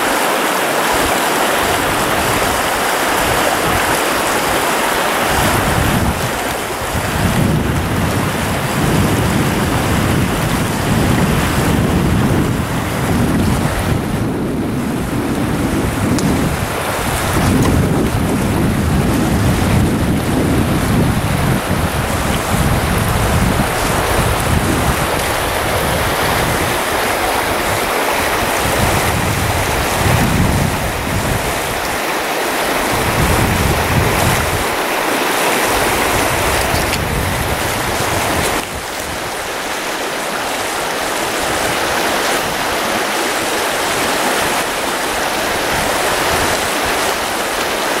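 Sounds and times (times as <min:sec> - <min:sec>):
creek water rushing: 0:00.0 - 0:48.0
wind buffeting microphone: 0:00.8 - 0:48.0.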